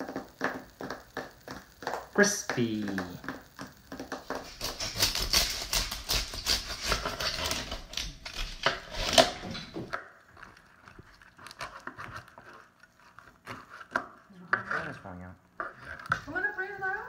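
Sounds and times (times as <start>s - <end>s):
knife cutting crackling pork skin: 2.8s - 14.9s.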